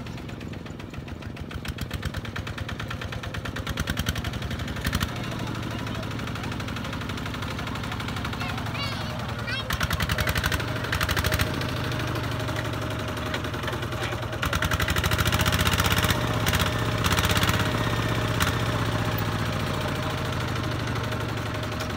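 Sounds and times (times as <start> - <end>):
diesel engine knocking: 0.0 - 21.9.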